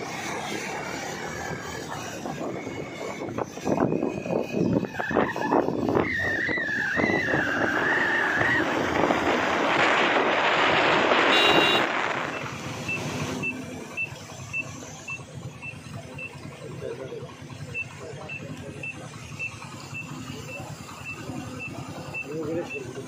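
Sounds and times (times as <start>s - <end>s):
vehicle passing by: 0.0s - 5.7s
wavering high squeal: 0.8s - 8.9s
short high beeps: 11.3s - 16.3s, 17.7s - 22.9s.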